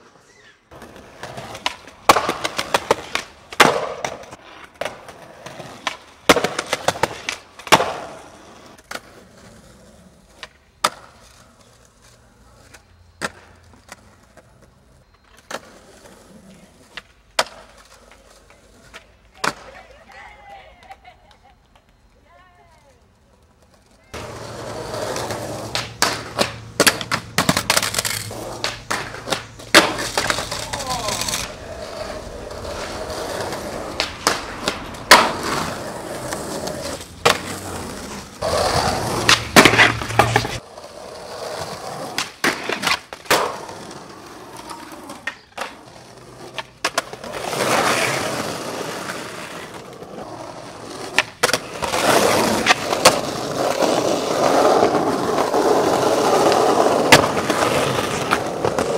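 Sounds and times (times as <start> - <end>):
skateboard trucks grinding on ledge: 0.0 - 19.8, 23.4 - 58.9
skateboard wheels rolling on concrete: 0.0 - 58.9
skateboard pops and landing slaps: 0.7 - 8.2, 10.3 - 11.4, 12.7 - 14.7, 16.9 - 18.2, 18.9 - 19.8, 24.1 - 40.6, 41.7 - 49.9, 51.0 - 53.9, 56.4 - 58.9.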